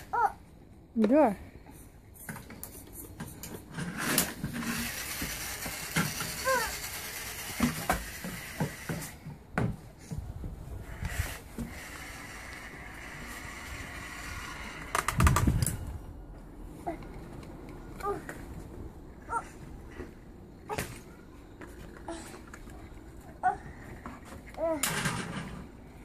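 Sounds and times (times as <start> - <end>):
toy truck motor whirring: 2.8 - 9.3, 10.8 - 15.9.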